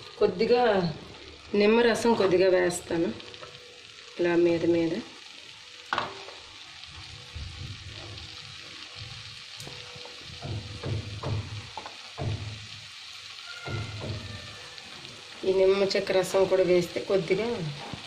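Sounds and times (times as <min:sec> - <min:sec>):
rice sizzling in a pan: 0:00.0 - 0:18.0.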